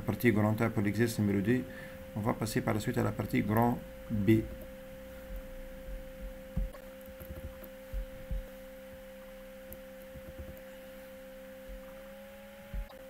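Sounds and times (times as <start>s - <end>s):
steady mid-pitched hum: 0.0s - 13.0s
soft low thumps: 3.9s - 10.7s, 11.6s - 12.0s, 12.7s - 13.0s.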